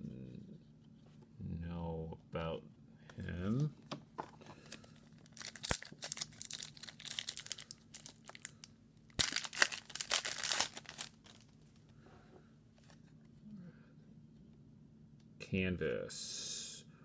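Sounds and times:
plastic wrapper tearing: 0:05.2 - 0:11.5.

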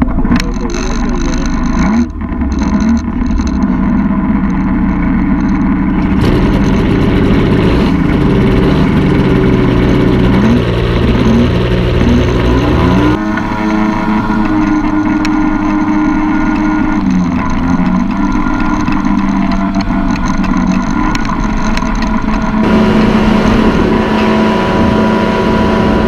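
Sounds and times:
paramotor engine and propeller running: 0:00.0 - 0:26.0.

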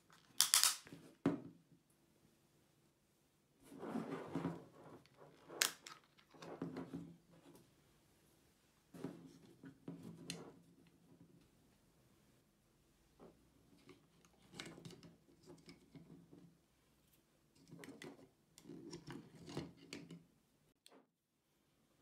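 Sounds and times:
batteries clicking and rattling: 0:00.1 - 0:00.9.

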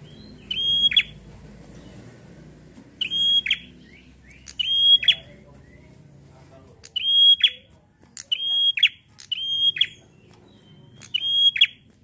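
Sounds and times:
bird whistling call: 0:00.0 - 0:01.2, 0:03.0 - 0:05.8, 0:06.9 - 0:07.6, 0:08.3 - 0:10.0, 0:10.6 - 0:11.8.

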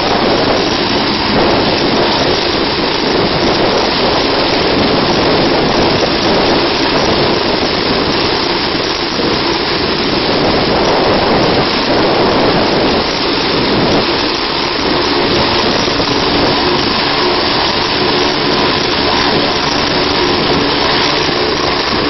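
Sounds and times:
helicopter engine and rotor: 0:00.0 - 0:22.0.

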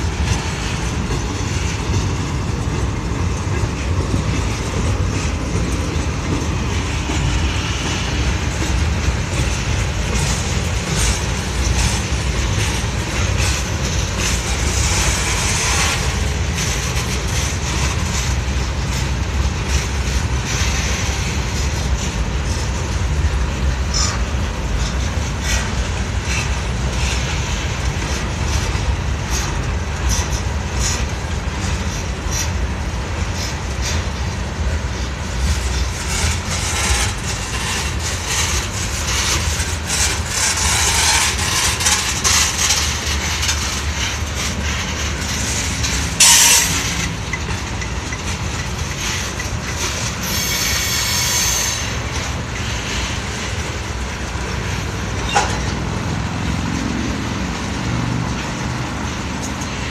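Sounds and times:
freight train rumbling: 0:00.0 - 0:59.9
wheels clicking over rail joints: 0:00.0 - 0:59.9
faint wheel squeal: 0:50.2 - 0:51.9
loud screech: 0:50.2 - 0:51.9.

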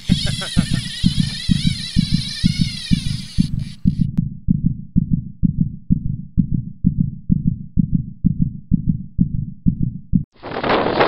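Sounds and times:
low heavy thumping: 0:01.0 - 0:10.3.

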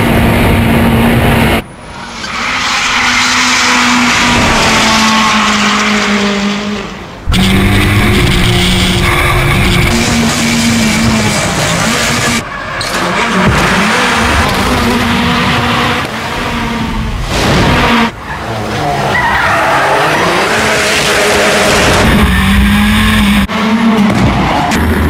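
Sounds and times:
car engine revving hard: 0:04.0 - 0:12.4.

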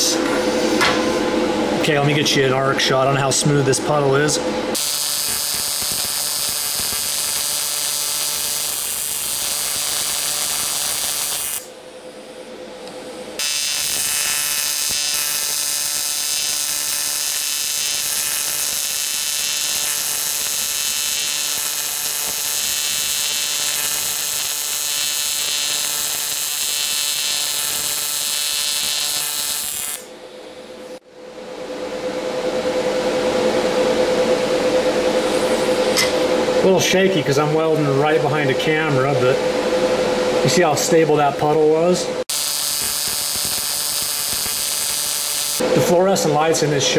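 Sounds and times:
welding arc buzzing: 0:04.7 - 0:11.8, 0:12.8 - 0:31.0, 0:42.2 - 0:45.6.

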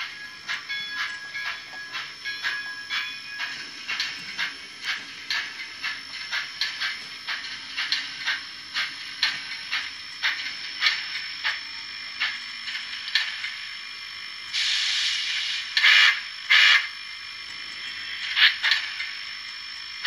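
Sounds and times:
steam hiss: 0:14.4 - 0:16.9, 0:18.0 - 0:19.3
model steam engine chuffs: 0:14.4 - 0:17.0
loud short steam bursts: 0:14.5 - 0:16.9.

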